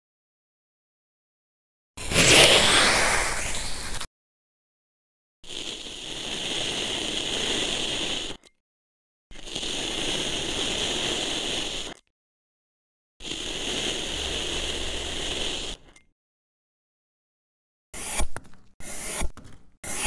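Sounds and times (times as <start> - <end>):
tool scraping sand: 2.0 - 4.1, 5.4 - 8.5, 9.3 - 12.0, 13.2 - 16.0, 18.0 - 20.0.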